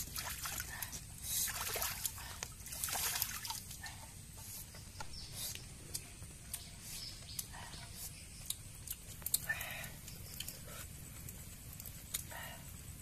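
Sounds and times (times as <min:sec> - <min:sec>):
hands splashing in water: 0:01.5 - 0:03.7.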